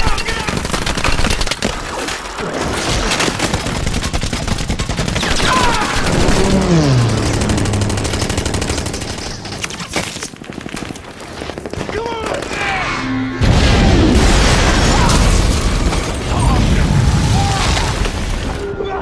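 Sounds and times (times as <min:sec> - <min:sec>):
rapid machine-gun fire: 0:00.0 - 0:01.8, 0:02.7 - 0:12.5
explosions: 0:05.3 - 0:09.8, 0:12.5 - 0:18.6
descending pitch glide into low tone: 0:06.0 - 0:09.6, 0:12.7 - 0:14.4.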